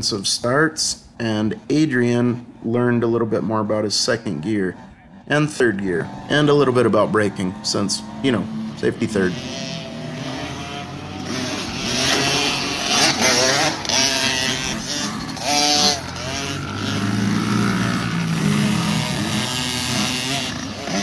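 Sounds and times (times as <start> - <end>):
dirt bikes revving and accelerating: 1.5 - 21.0.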